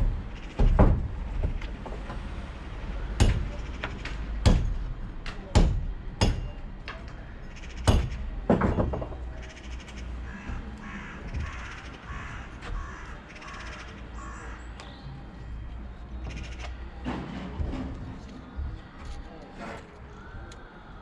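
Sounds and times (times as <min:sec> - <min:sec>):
bird calls: 0:09.4 - 0:17.0.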